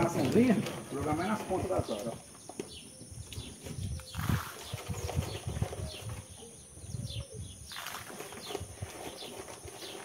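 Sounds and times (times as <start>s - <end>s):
bird chirps: 1.9s - 10.0s
pellets pattering on water: 7.7s - 8.4s.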